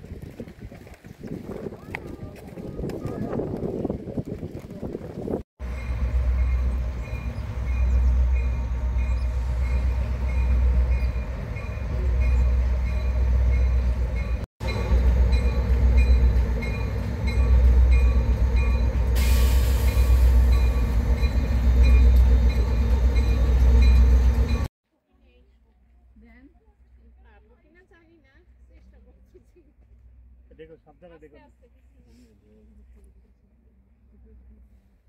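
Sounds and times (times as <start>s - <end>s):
train passing with deep rumble: 1.6s - 24.7s
hiss: 19.2s - 20.4s.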